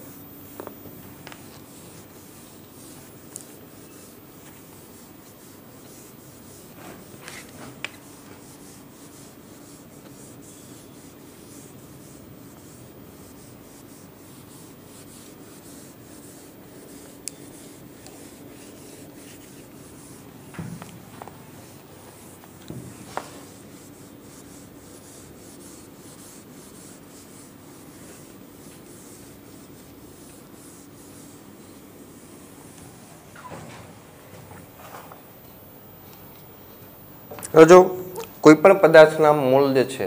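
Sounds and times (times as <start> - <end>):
cloth wiping whiteboard: 0.0 - 40.0.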